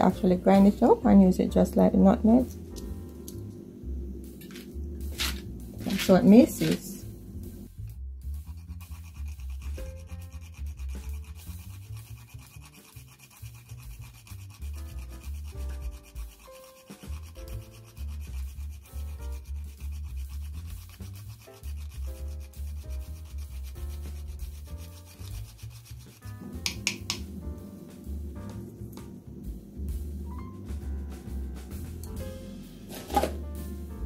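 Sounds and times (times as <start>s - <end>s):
background music: 0.0s - 34.0s
nutmeg scraping on metal grater: 8.4s - 26.4s.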